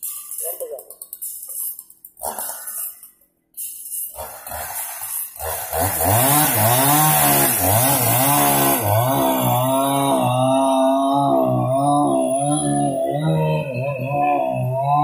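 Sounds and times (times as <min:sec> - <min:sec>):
chainsaw cutting log: 0:04.1 - 0:15.0.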